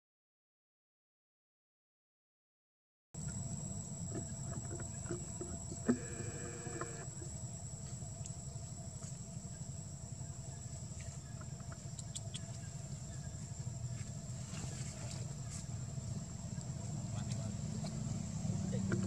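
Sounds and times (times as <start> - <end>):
high whine: 3.2 - 11.8.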